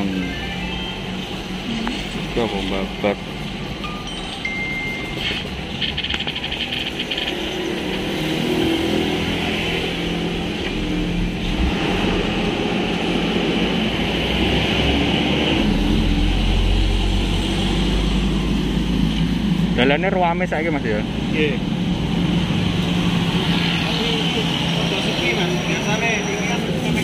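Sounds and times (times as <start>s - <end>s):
cars and motorcycles passing: 0.0s - 27.0s.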